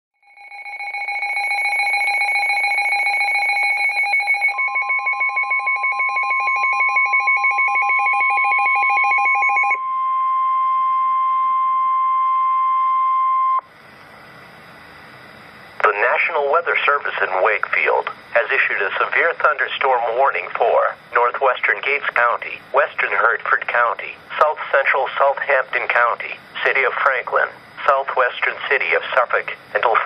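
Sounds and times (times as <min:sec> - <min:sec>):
steady alarm tone: 0:00.2 - 0:30.0
rapid two-pitch electronic beeps: 0:00.6 - 0:09.8.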